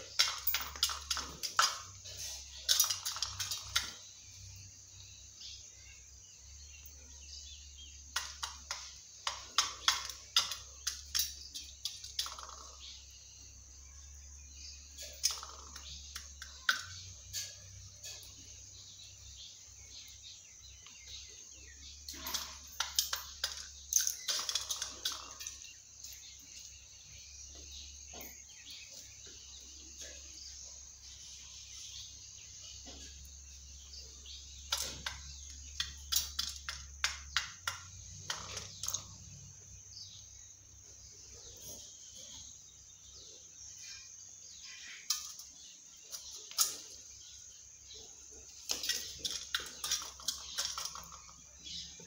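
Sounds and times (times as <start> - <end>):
beak pecking metal tin: 0.0 - 4.2, 7.7 - 12.9, 22.1 - 26.4, 33.9 - 39.3, 44.6 - 47.2, 48.5 - 52.0.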